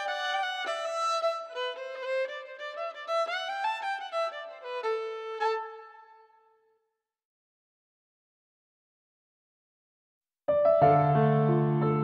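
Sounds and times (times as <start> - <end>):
fiddle playing quick melody: 0.0 - 6.3.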